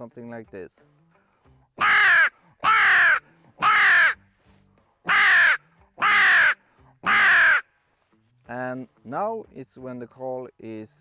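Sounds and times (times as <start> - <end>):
raspy crow call caws: 1.8 - 4.2, 5.1 - 7.8.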